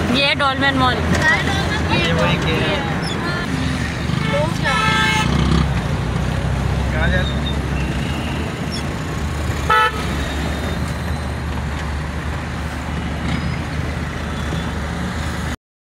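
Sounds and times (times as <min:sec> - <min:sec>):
car engine and road rumble: 0:00.0 - 0:15.6
car horn honk: 0:04.2 - 0:05.4, 0:09.7 - 0:10.3.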